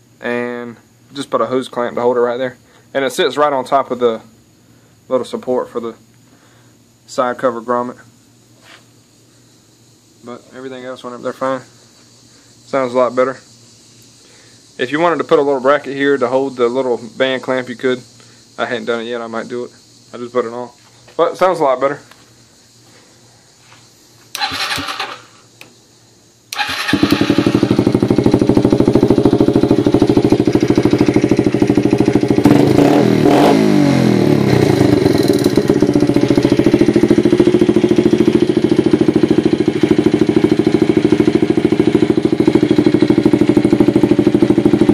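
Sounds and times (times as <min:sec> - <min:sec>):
motorcycle engine revving: 0:24.3 - 0:25.3, 0:26.5 - 0:44.9
motorcycle engine idling: 0:26.5 - 0:44.9.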